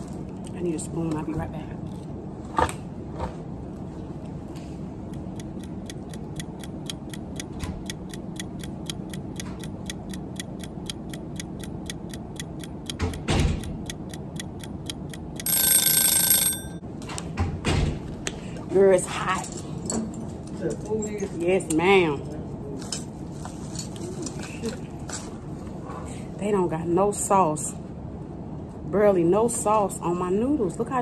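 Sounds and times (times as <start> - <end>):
clock ticking: 5.1 - 16.5
alarm clock ringing: 15.4 - 16.8.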